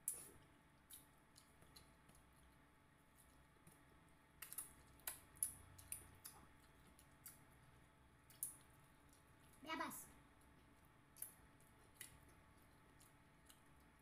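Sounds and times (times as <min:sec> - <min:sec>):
lip smacks while chewing: 0:00.0 - 0:07.6, 0:10.4 - 0:14.0.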